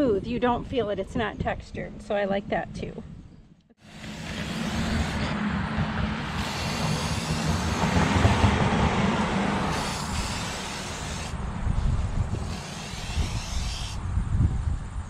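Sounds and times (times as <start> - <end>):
spray paint can hissing: 9.3 - 11.4, 12.4 - 14.0.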